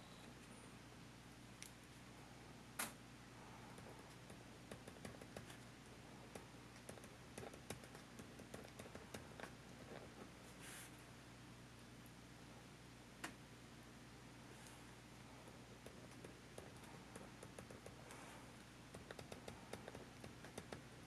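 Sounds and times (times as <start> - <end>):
ballpoint pen writing on card: 6.3 - 10.3, 19.0 - 21.0.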